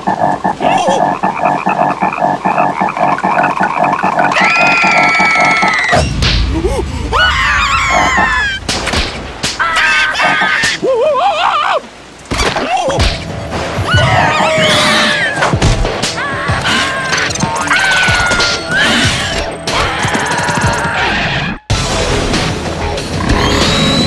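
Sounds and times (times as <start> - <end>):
cartoon voices screaming: 4.3 - 6.0, 7.1 - 8.7, 9.6 - 11.9, 13.8 - 15.6, 16.2 - 21.4
sharp hits: 5.3 - 10.8.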